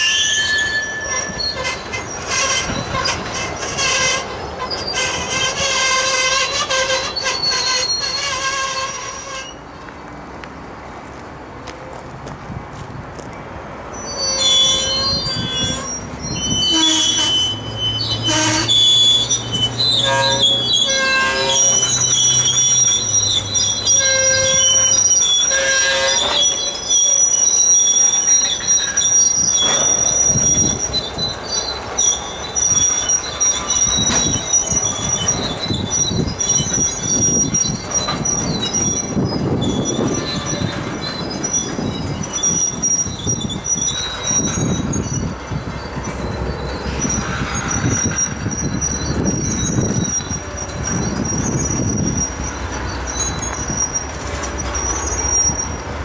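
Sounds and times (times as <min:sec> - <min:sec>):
train wheels squealing: 0:00.0 - 0:09.8, 0:13.9 - 0:56.0
rumble of wheels on rail: 0:00.0 - 0:56.0
clunks: 0:28.0 - 0:30.8.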